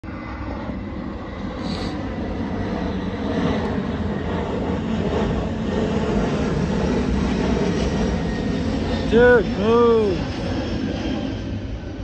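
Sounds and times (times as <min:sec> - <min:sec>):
diesel freight train rumble: 0:06.4 - 0:10.6.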